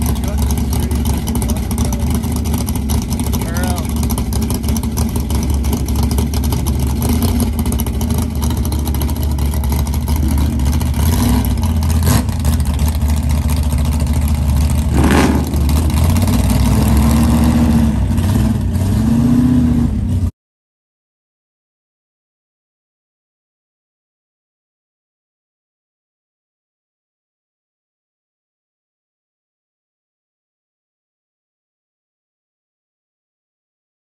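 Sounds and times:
car engine droning: 0.0s - 20.3s.

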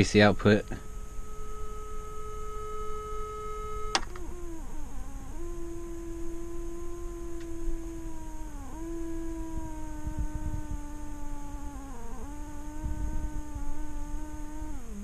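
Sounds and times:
loudspeaker test tone: 0.0s - 14.7s
click: 7.4s - 7.6s.

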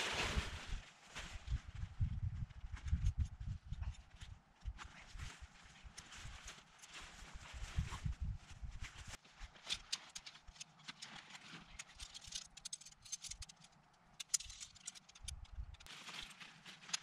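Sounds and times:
tent pole sections clicking: 9.1s - 17.0s.

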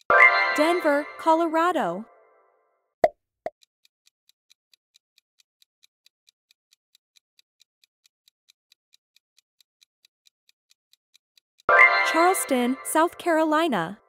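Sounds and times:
fast clock ticking: 3.6s - 14.0s.

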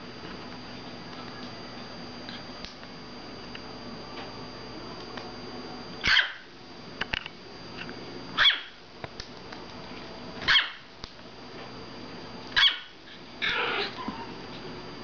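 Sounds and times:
puppy barking: 6.0s - 6.5s, 8.4s - 8.8s, 10.5s - 10.9s, 12.6s - 14.4s.

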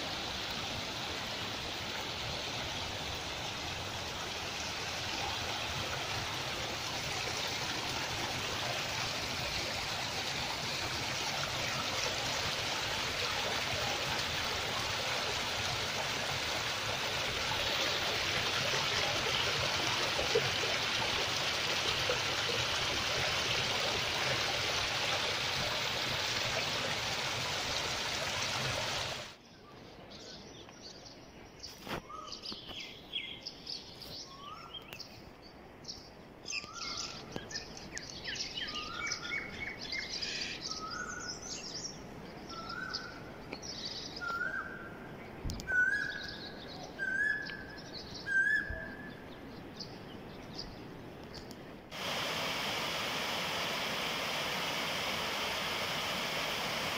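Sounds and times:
stream splashing over rocks: 0.0s - 29.4s, 51.9s - 56.9s.

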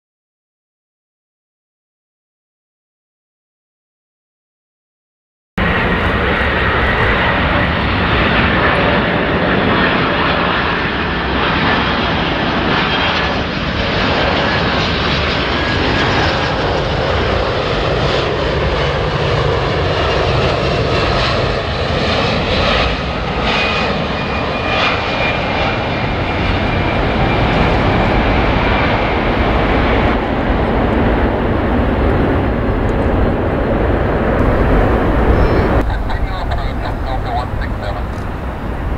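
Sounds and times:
jet engine roar with whine: 5.6s - 38.9s.

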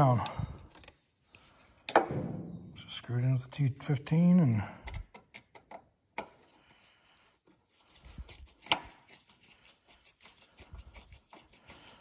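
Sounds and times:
screwdriver clicking and scraping: 8.4s - 9.2s.

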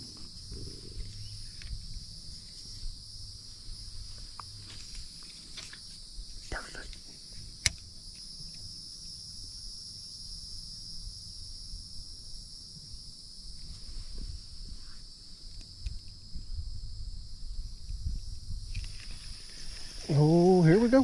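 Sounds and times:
high-pitched insect chorus: 0.0s - 21.0s.

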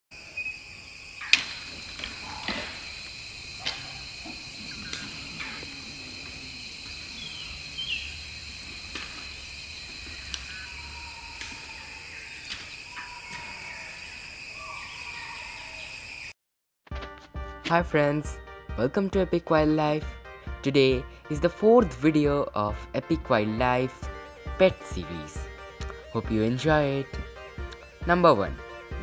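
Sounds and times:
insect chorus: 0.1s - 16.3s, 24.0s - 29.0s
bird chirp: 0.2s - 16.3s.

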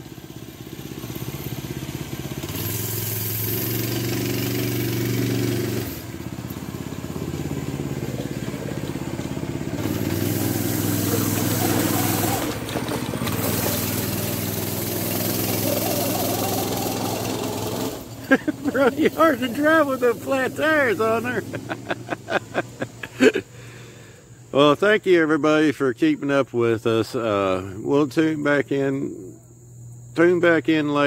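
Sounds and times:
go-kart engine running: 0.0s - 23.9s.

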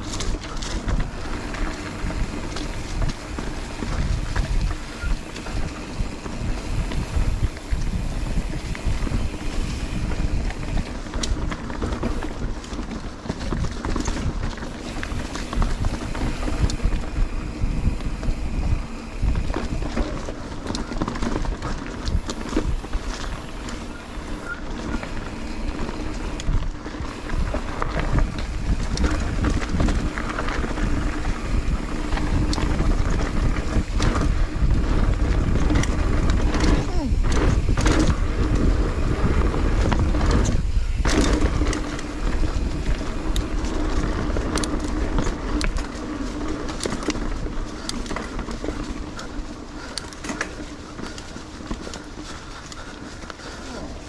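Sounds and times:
bike clattering and rattling: 0.0s - 54.0s
tyres rolling on dirt trail: 0.0s - 54.0s
wind on microphone: 0.0s - 54.0s.

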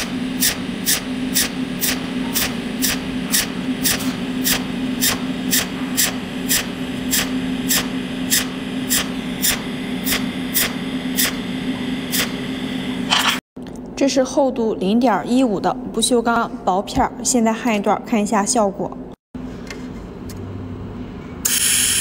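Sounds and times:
welding arc snaps: 0.0s - 11.4s.

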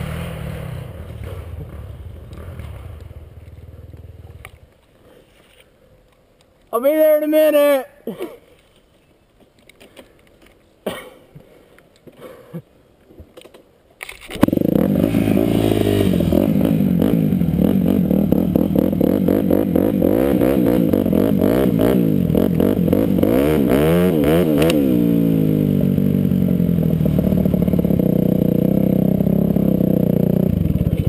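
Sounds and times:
dirt bike engine revving: 0.0s - 4.3s, 14.4s - 31.0s.

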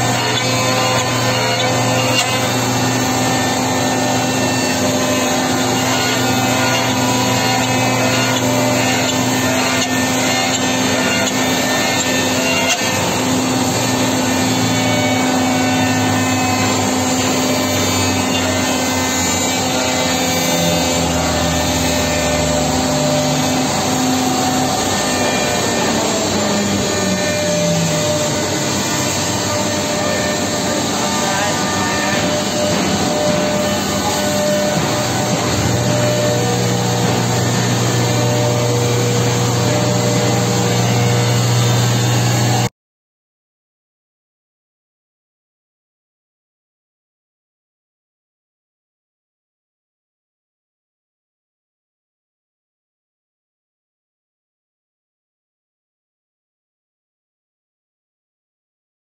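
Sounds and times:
wood machining centre cutting: 0.0s - 42.7s.

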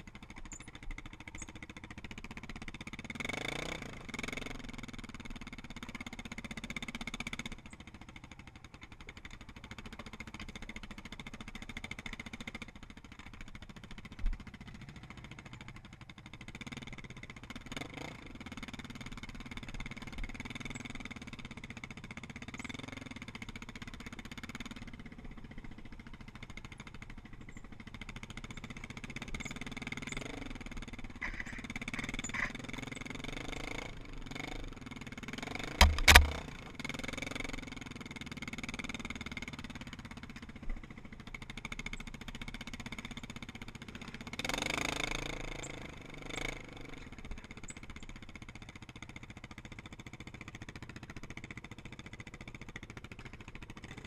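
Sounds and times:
quad engine running: 0.0s - 54.0s
sharp knocks: 35.8s - 36.4s.

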